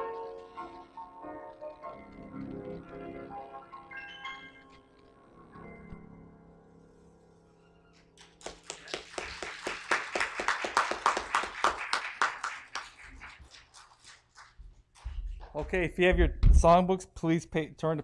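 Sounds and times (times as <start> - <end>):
congregation applauding: 8.2 - 15.8.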